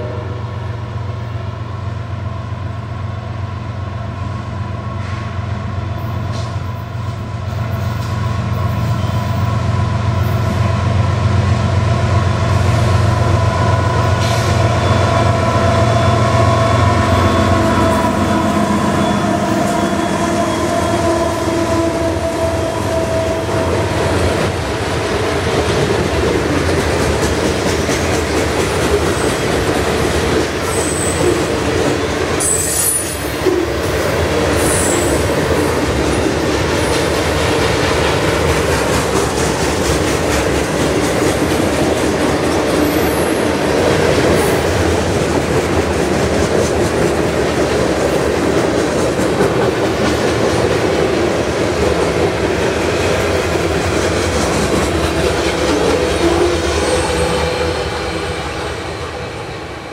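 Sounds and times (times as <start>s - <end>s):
train wheels rumbling on rail: 0.0s - 59.9s
high-pitched wheel squeals: 13.6s - 23.4s, 32.4s - 33.4s
rhythmic clickety-clack: 23.6s - 32.3s, 35.2s - 56.4s.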